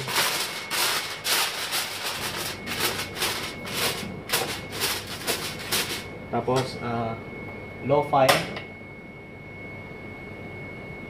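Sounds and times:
aluminium foil crinkling: 0.0 - 6.1.

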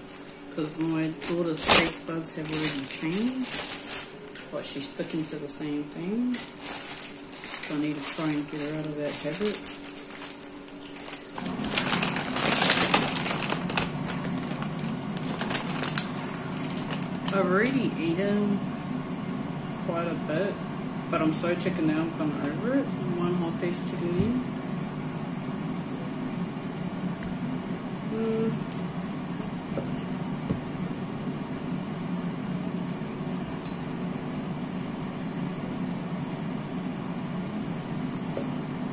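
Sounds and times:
plastic bags crinkling: 0.0 - 5.5, 6.2 - 17.8
low machine hum: 0.0 - 38.9.

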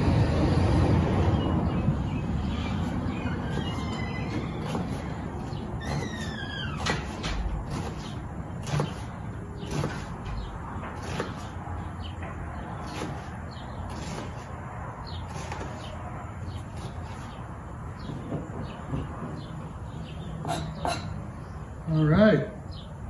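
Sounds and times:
knife cutting onion: 2.7 - 11.7, 12.6 - 14.6, 15.2 - 16.0, 16.6 - 17.3.

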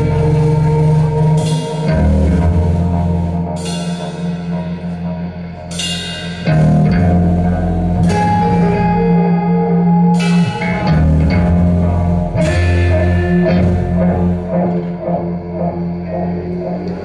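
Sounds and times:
cymbal crashes: 0.0 - 8.7
electric guitar riff: 0.0 - 17.0.

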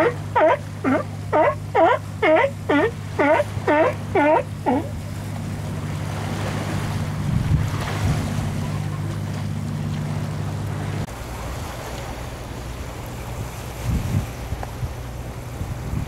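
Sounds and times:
low motor hum: 0.0 - 16.0
surf washing against rocks: 0.0 - 16.0
wind on microphone: 6.4 - 8.9, 13.3 - 16.0.

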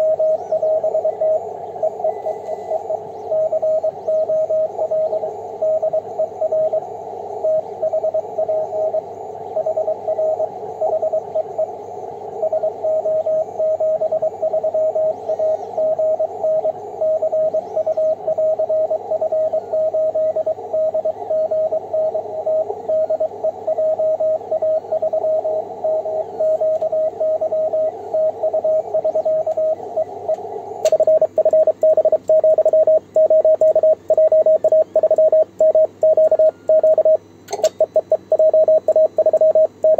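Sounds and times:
receiver hiss: 0.0 - 39.9
fast keyed morse sidetone: 12.4 - 39.9
morse code tone: 15.8 - 30.1, 30.9 - 39.9.

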